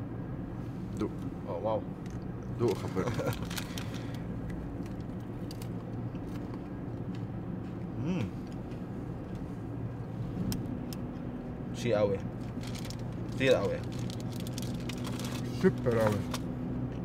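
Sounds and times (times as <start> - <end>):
car engine drone: 0.0 - 17.0
road noise: 0.0 - 17.0
person humming: 8.0 - 8.4.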